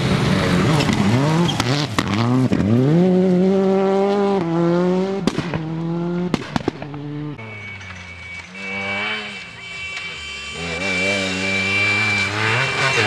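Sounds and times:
rally car accelerating on gravel: 0.0 - 7.4, 10.6 - 13.0
sharp cracks: 6.3 - 7.0.

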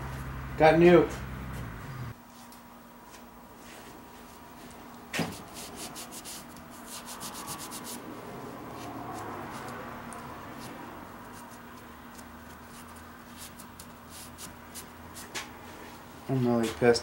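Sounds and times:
cloth rag rubbing metal: 5.3 - 8.1, 10.6 - 15.3.

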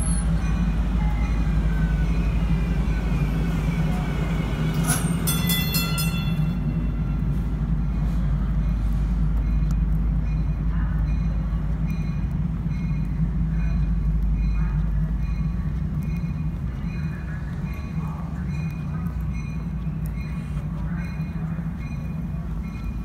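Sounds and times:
light rail train pulling out: 0.0 - 23.0
steady low rumble: 5.4 - 23.0.

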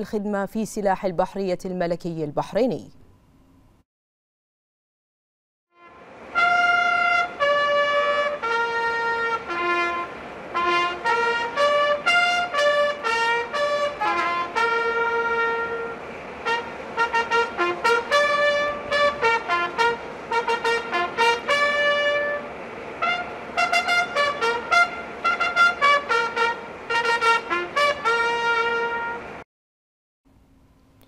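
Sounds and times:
trumpet fanfare: 5.7 - 29.4.

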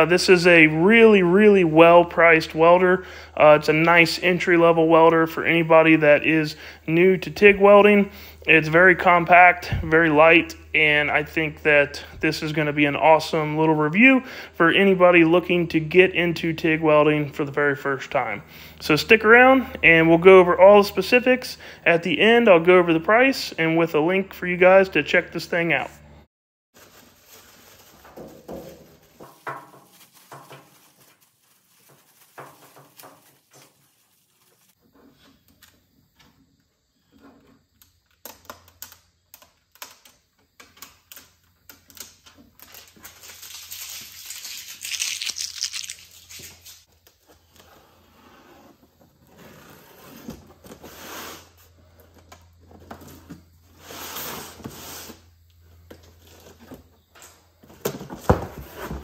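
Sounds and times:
plastic packaging crinkling: 26.8 - 34.8, 42.6 - 46.8
plastic ripping: 42.6 - 46.8.

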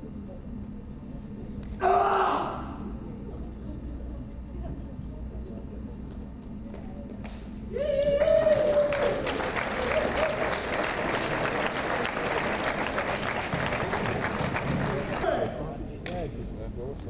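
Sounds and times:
long cheering shout: 1.8 - 2.6, 7.7 - 10.7
audience applauding and cheering: 8.0 - 15.4.

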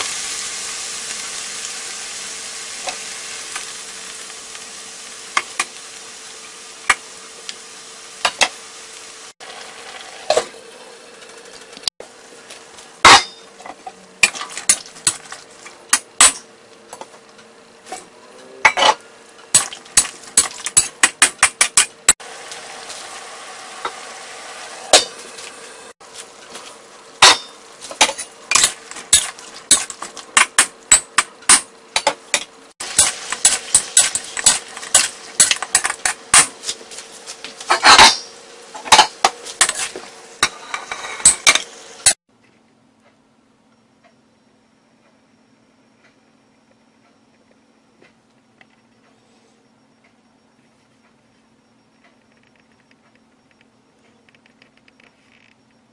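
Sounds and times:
food sizzling in hot oil: 0.0 - 12.4, 21.8 - 31.6, 32.8 - 42.2
spatula scraping and knocking wok: 24.6 - 42.2.

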